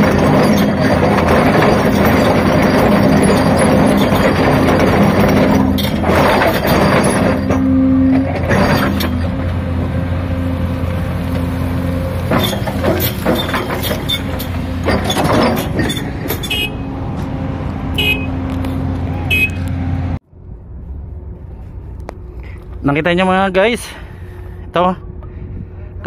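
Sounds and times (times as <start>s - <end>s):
trencher grinding into rock: 0.0s - 9.5s, 12.2s - 16.6s
knocks and scraping: 0.0s - 23.0s
excavator diesel engine running: 0.0s - 26.0s.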